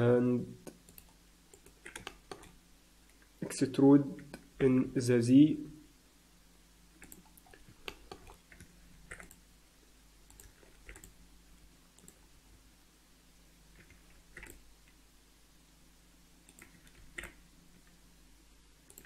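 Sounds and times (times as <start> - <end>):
low steady hum: 0.0 - 19.0
mouse and keyboard clicks: 0.6 - 2.6, 7.0 - 9.4, 10.3 - 11.2, 13.7 - 14.6, 16.5 - 17.4.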